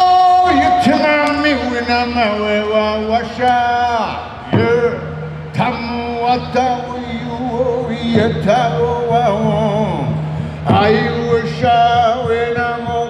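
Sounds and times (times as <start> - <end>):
steady low drone: 0.5 - 13.0
man singing held notes: 3.0 - 13.0.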